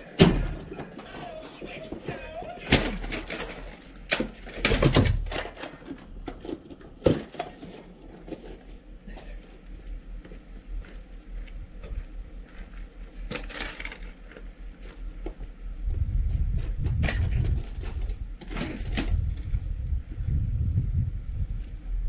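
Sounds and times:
footsteps on gravel: 7.5s - 18.2s
wind buffeting microphone: 15.7s - 22.0s.

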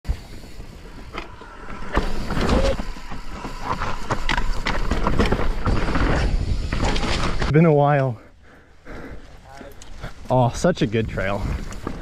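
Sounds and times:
bike tyres rumbling on dirt: 0.1s - 7.6s, 10.0s - 12.0s
bike rattles and knocks: 0.8s - 7.5s.

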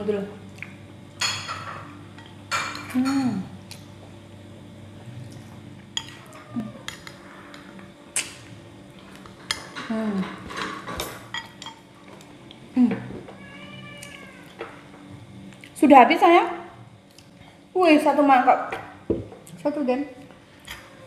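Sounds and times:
cat meowing: 13.3s - 14.6s.

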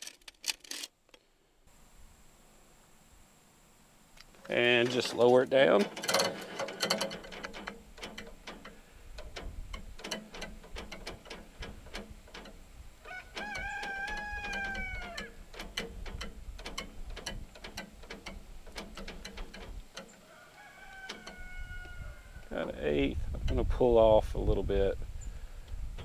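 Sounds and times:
hand-crank winch clicking: 4.7s - 20.2s, 21.0s - 21.4s
rooster crowing: 13.0s - 15.4s, 20.2s - 22.6s.

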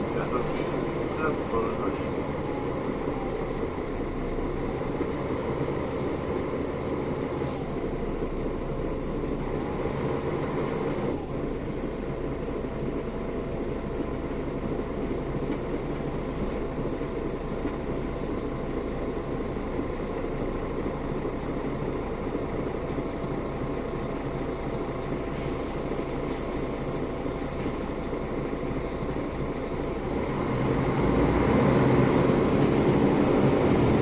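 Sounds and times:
bus engine and road rumble: 0.0s - 34.0s
faint steady whine: 11.1s - 30.0s.

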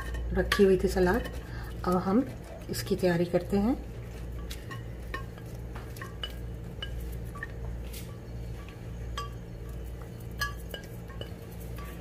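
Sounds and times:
spatula clinking against dish: 9.1s - 12.0s.

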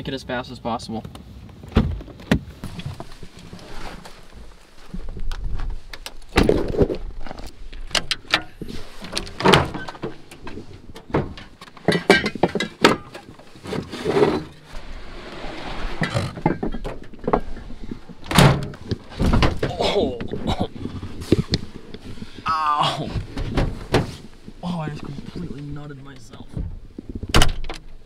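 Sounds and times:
clicks and clunks of handling gear: 1.0s - 14.8s
heavy thunk: 18.3s - 19.8s.

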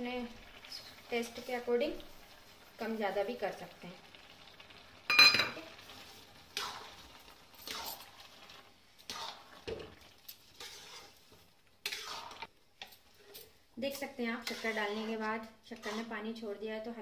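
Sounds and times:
faint sizzle of cooking: 0.0s - 17.0s
spatula scraping metal pan: 9.0s - 9.6s, 10.3s - 12.5s, 14.0s - 16.2s.

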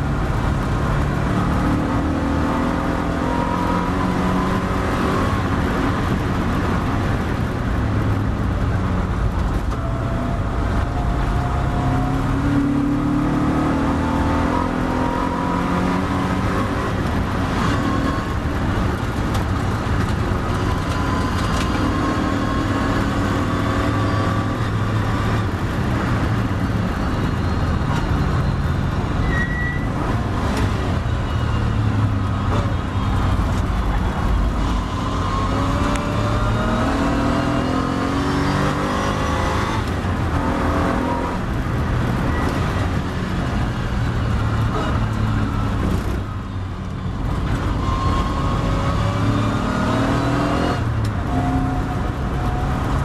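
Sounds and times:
race car engine revving: 8.2s - 26.4s, 29.9s - 46.2s, 47.2s - 53.0s.

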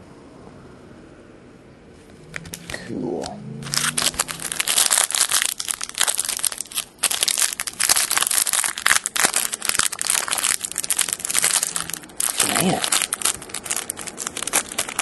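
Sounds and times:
foil wrapper crinkling: 3.6s - 15.0s.

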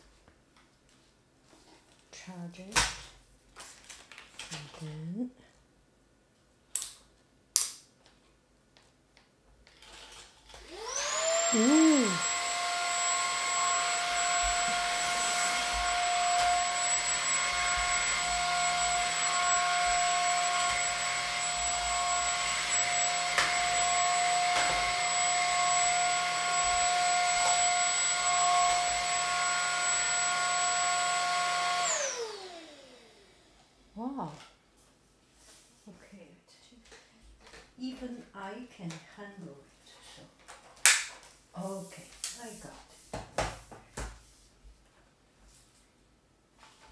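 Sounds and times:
vacuum motor whine: 10.6s - 33.8s.

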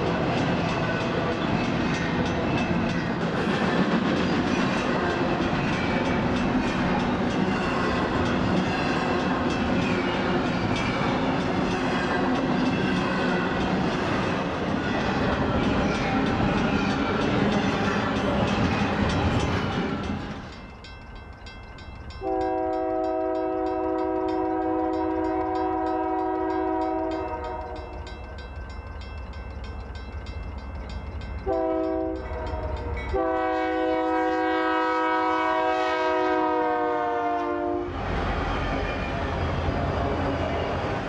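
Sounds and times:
train rumbling past: 0.0s - 41.0s
crossing bell ringing: 4.8s - 34.3s
locomotive air horn blasts: 22.2s - 27.8s, 31.5s - 37.9s.

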